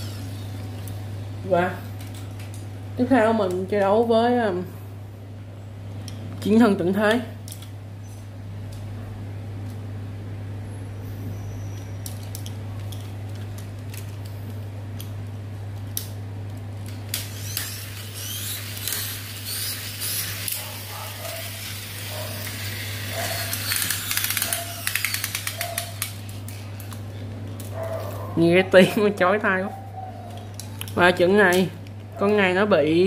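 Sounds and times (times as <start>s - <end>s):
high-pitched toy motor whir: 0.0s - 0.4s, 17.1s - 26.8s
toy car clicks: 23.4s - 26.2s.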